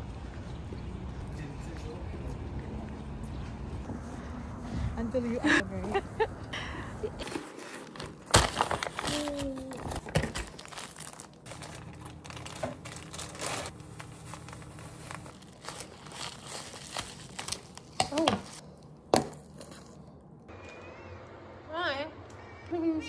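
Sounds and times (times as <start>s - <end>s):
crinkling and rustling: 7.2s - 18.6s.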